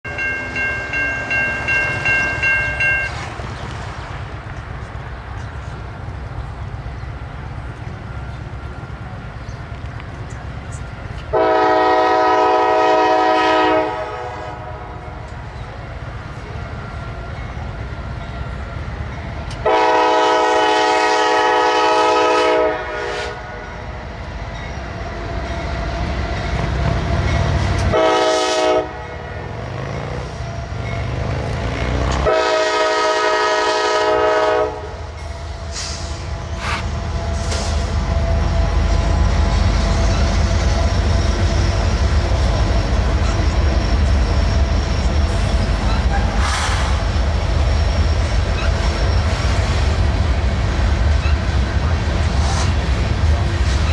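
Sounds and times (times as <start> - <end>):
diesel locomotive rumble: 0.0 - 53.9
locomotive air horn blasts: 11.3 - 15.0, 19.6 - 23.8, 27.8 - 29.5, 32.2 - 37.9.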